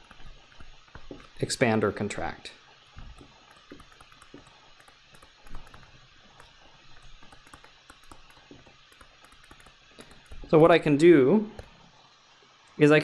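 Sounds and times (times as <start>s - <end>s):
stylus tapping on tablet: 0.0s - 1.4s, 2.8s - 10.5s.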